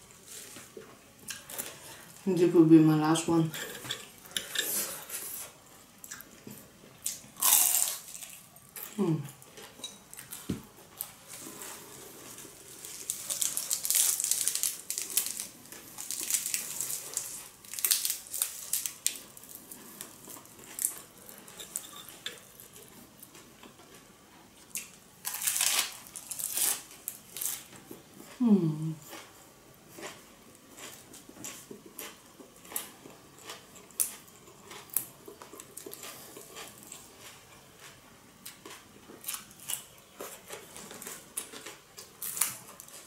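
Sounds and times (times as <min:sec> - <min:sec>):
crisp bites and chewing: 0:07.1 - 0:08.4, 0:12.8 - 0:21.8, 0:24.7 - 0:27.7
leaves crinkling: 0:11.3 - 0:19.7, 0:25.2 - 0:27.7.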